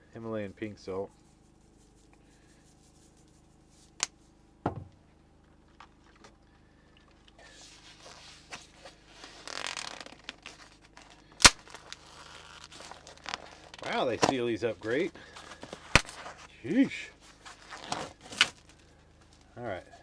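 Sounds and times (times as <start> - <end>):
plastic film crinkling: 7.6 - 19.6.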